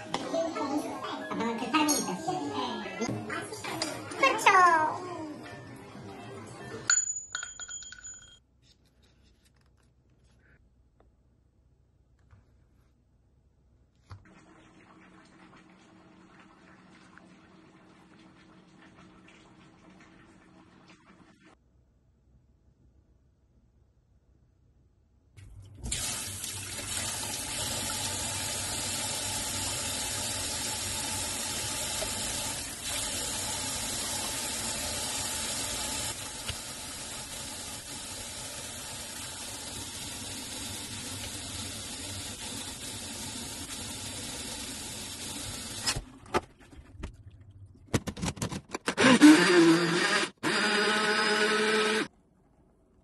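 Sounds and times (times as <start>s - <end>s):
blender running: 48.9s - 52.1s.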